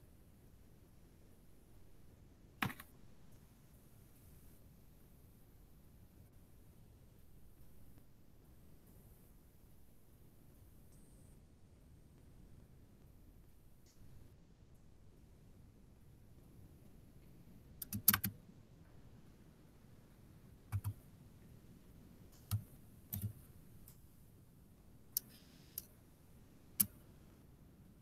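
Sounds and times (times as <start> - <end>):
computer keyboard clicks: 17.8 - 18.4, 20.7 - 21.0, 22.4 - 23.4.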